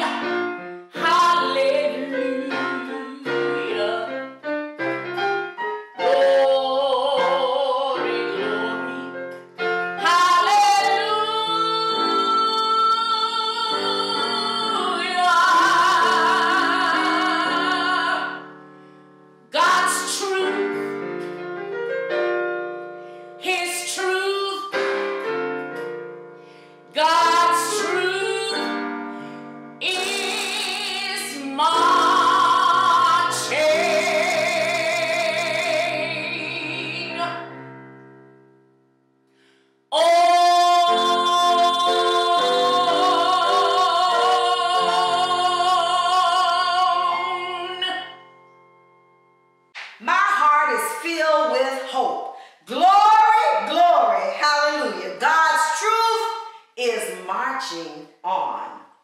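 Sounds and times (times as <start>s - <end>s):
woman singing operatically: 0.0s - 4.2s, 6.0s - 9.2s, 10.0s - 18.4s, 19.5s - 20.9s, 23.4s - 24.8s, 27.0s - 28.8s, 29.8s - 37.5s, 39.9s - 48.2s, 50.0s - 58.8s
piano accompaniment: 0.0s - 55.7s
singer breathing: 18.7s - 19.2s, 23.0s - 23.4s, 26.4s - 26.9s, 39.3s - 39.8s, 52.3s - 52.7s.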